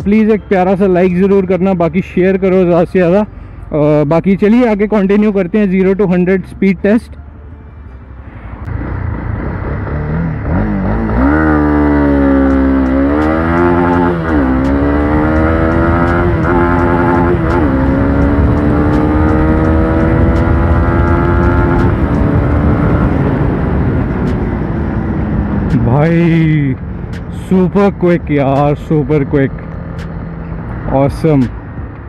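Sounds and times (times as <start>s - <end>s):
motorcycle engine accelerating: 8.7s - 27.4s.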